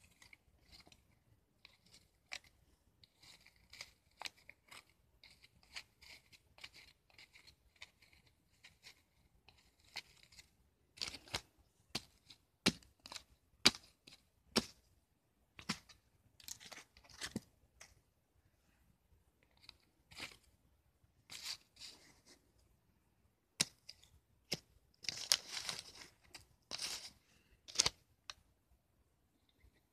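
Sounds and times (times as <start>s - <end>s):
paper crackles and taps: 23.6s - 27.1s, 27.7s - 28.4s.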